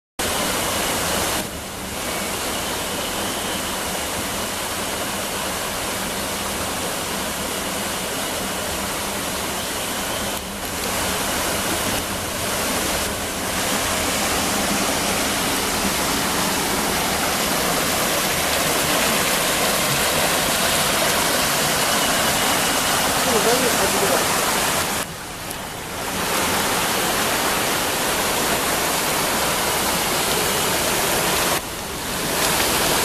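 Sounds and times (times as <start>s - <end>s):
stream running over rocks: 0.2s - 33.0s
waterfall pouring over rocks: 0.2s - 33.0s.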